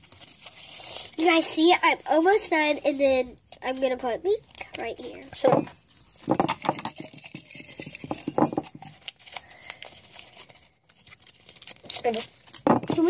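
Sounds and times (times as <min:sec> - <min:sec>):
duct tape crinkling: 0:03.4 - 0:13.0.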